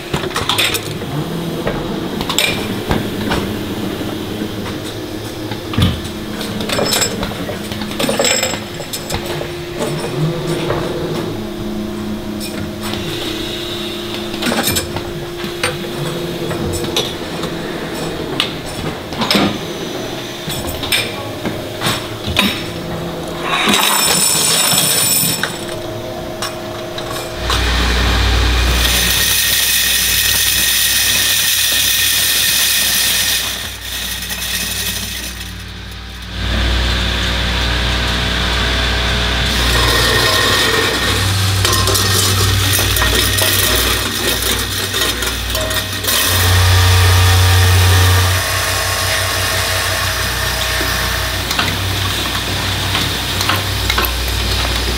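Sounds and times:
deep machine rumble: 0:00.0 - 0:54.9
machinery humming: 0:00.0 - 0:54.9
metal plates clinking: 0:39.5 - 0:54.7.

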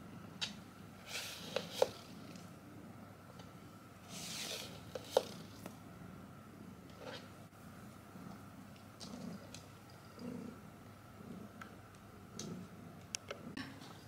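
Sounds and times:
cat pawing plastic hair roller: 0:04.4 - 0:05.4.

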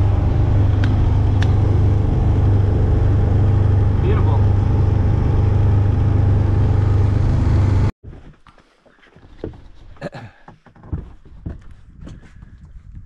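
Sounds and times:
motorboat engine drone: 0:00.0 - 0:07.9
wind: 0:00.0 - 0:13.0.

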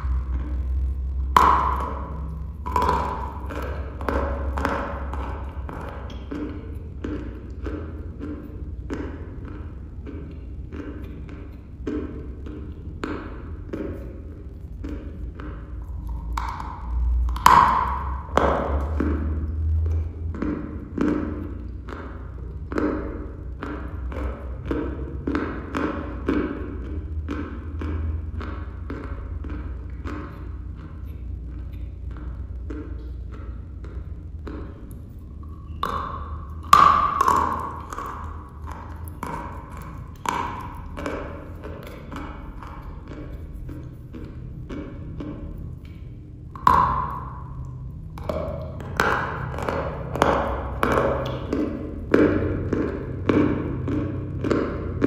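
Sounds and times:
chalk crunching while chewed: 0:34.6 - 0:54.4.

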